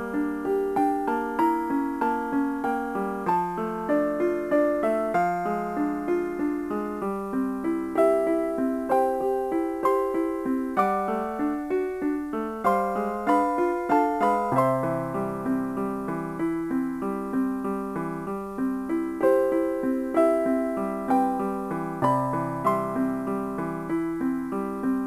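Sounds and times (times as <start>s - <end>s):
piano melody: 0.0s - 25.0s.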